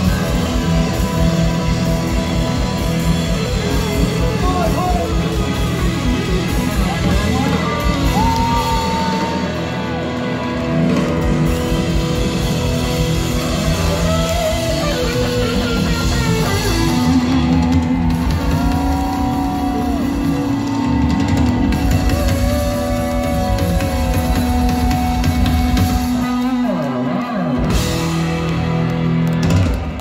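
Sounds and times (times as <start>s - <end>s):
electric guitar lead: 0.0s - 30.0s
rock band playing: 0.0s - 30.0s.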